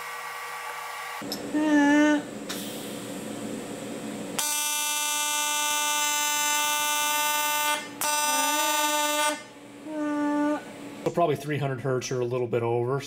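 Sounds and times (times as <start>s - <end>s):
welding arc buzzing: 4.2s - 11.0s.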